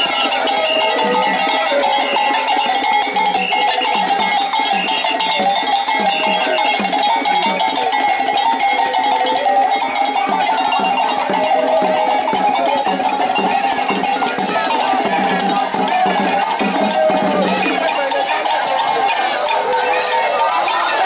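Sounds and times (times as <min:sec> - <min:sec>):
iron hand bells ringing: 0:00.0 - 0:21.0.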